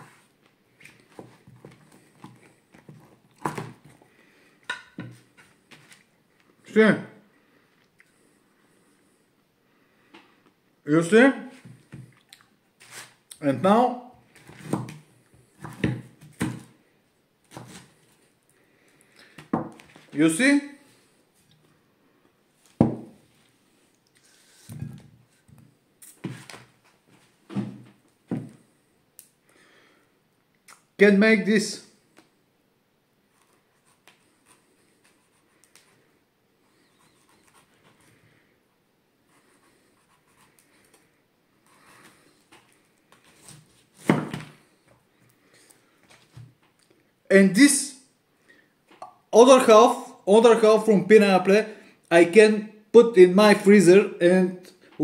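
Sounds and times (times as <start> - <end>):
knife chopping on wooden board: 15.6 - 16.7.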